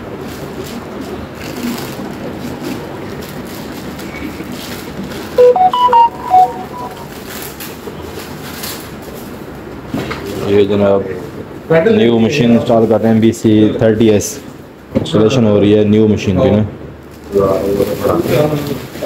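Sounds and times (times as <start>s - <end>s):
short melody of clear notes: 5.4s - 7.1s.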